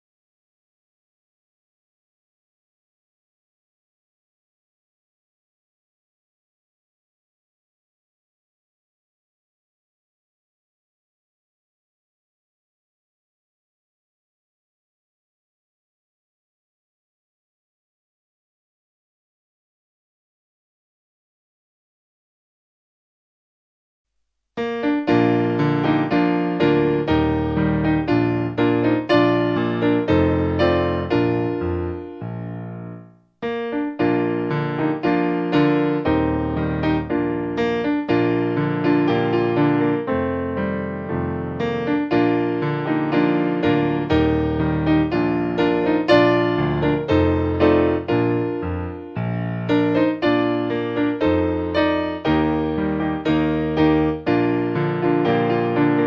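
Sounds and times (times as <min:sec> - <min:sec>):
piano music: 0:24.6 - 0:56.0.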